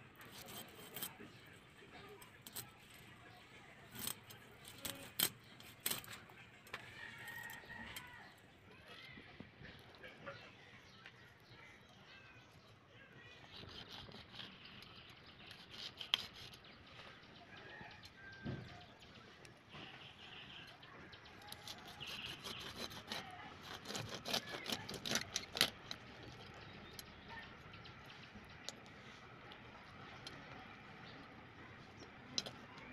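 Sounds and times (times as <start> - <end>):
blade scraping fish scales: 0.1 - 3.1, 13.4 - 16.8, 21.4 - 27.0
blade clicking through bones: 13.4 - 16.7, 21.4 - 27.2.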